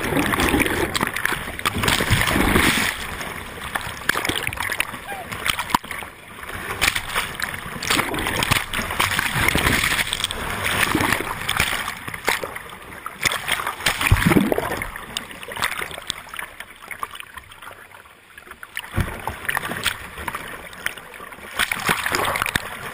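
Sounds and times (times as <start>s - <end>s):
whitewater rapids splashing: 0.0s - 12.6s.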